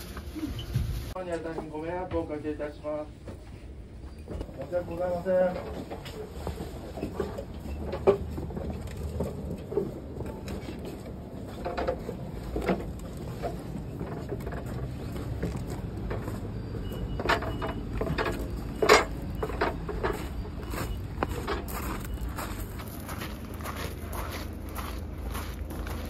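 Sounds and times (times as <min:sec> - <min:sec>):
footsteps: 0:03.2 - 0:26.0
knocks and clatter: 0:04.2 - 0:22.6.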